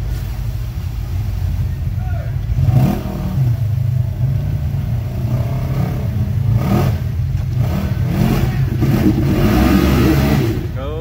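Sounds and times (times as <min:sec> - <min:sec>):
water splashing from tyres: 0:00.0 - 0:11.0
vehicle engine revving: 0:02.4 - 0:11.0.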